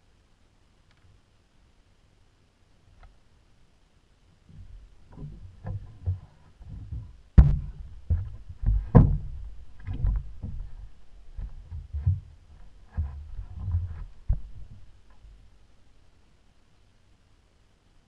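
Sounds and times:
knocks against boat hull: 5.2s - 10.7s.

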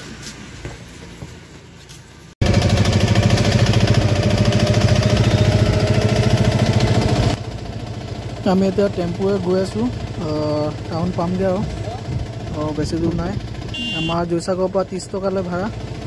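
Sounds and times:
street noise: 0.0s - 16.0s
small vehicle engine running loudly: 2.4s - 14.0s, 15.3s - 16.0s.

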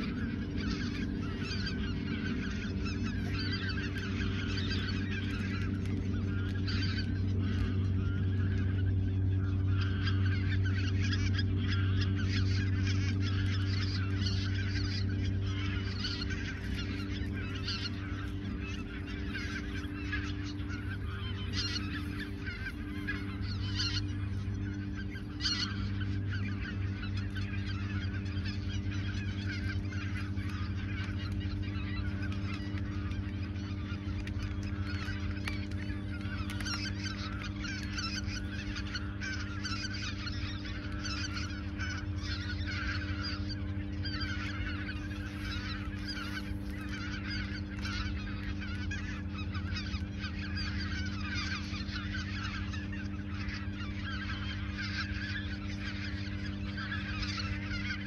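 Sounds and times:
geese honking: 0.0s - 58.0s
steady low hum: 0.0s - 58.0s.

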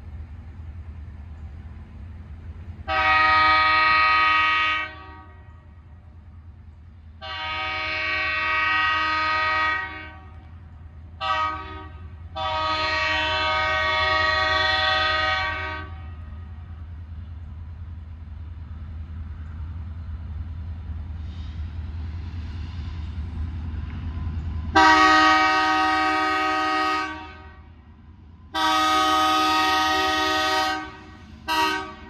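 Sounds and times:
locomotive air horn blasts: 2.9s - 5.8s, 7.2s - 10.5s, 11.2s - 16.5s, 24.7s - 27.8s, 28.5s - 32.0s.

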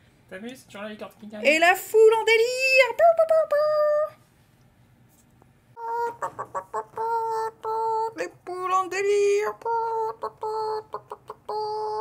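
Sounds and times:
child singing wordless tune: 2.2s - 4.2s, 6.8s - 12.0s.

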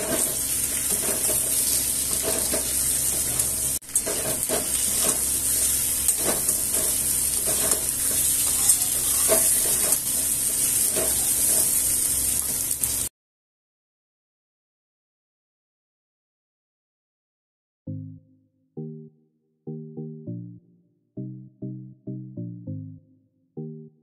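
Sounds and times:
spatula scraping a wok: 0.0s - 13.1s
vegetables sizzling in hot oil: 0.0s - 13.1s.

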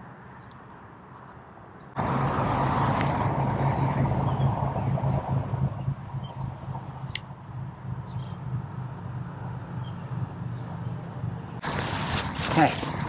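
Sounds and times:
low rumble: 2.0s - 8.4s
brushing through grass: 11.6s - 13.0s.

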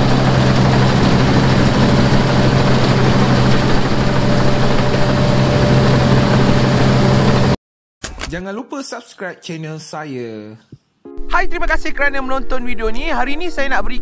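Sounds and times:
combine harvester engine drone: 0.0s - 7.6s.

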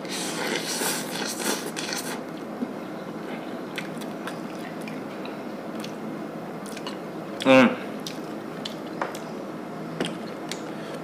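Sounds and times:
person slurping noodles: 0.0s - 2.2s
chewing with wet mouth clicks: 3.7s - 6.0s, 6.6s - 9.3s, 10.0s - 10.7s.

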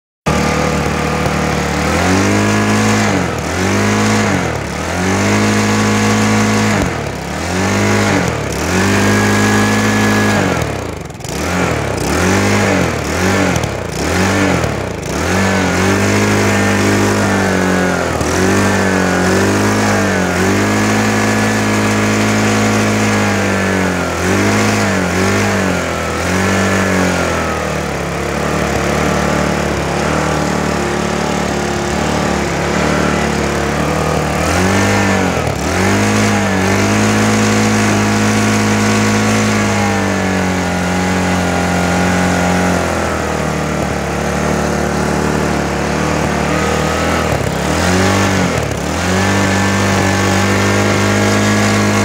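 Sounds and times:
lawn mower engine surging: 0.2s - 52.0s.

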